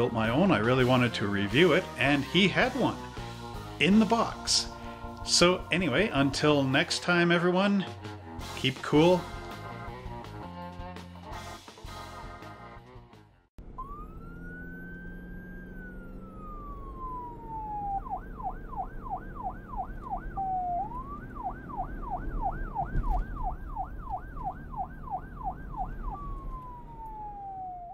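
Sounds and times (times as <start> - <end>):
music: 0.0 - 13.6
low vehicle rumble: 13.6 - 27.9
police siren wailing and yelping: 13.6 - 27.9
thump: 22.9 - 23.4.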